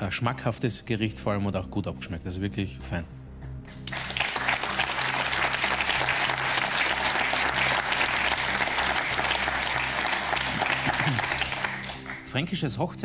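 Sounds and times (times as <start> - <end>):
audience applause: 3.8 - 12.4.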